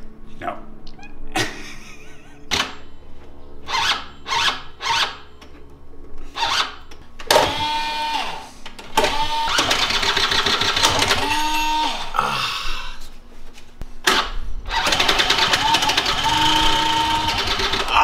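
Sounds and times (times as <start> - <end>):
scooter starter cranking: 8.9 - 12.1, 14.1 - 18.0.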